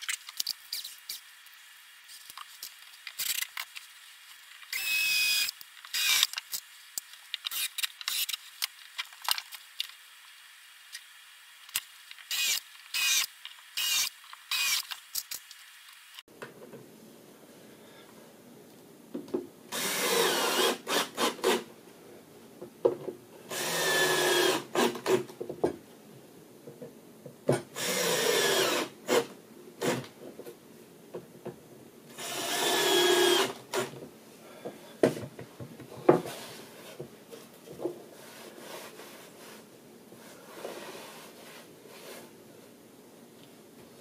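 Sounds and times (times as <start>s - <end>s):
drill-driver motor whine: 4.7s - 6.3s, 12.3s - 14.8s, 27.8s - 28.9s, 32.2s - 33.5s.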